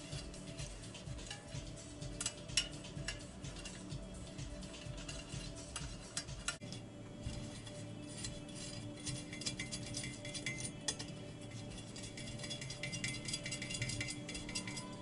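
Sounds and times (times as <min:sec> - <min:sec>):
background music: 0:00.0 - 0:15.0
bicycle spokes clinking: 0:00.0 - 0:15.0.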